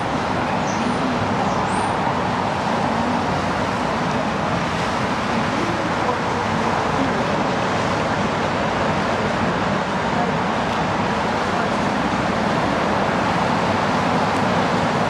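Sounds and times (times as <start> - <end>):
city traffic hum: 0.0 - 15.0.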